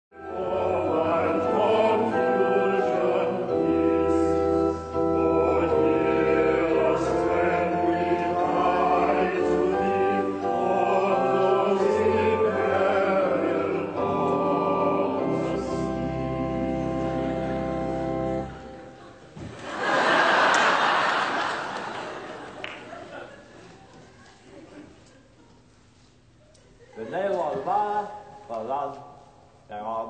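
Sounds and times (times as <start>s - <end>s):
congregation singing a hymn: 0.2s - 22.4s
organ accompaniment: 0.2s - 22.5s.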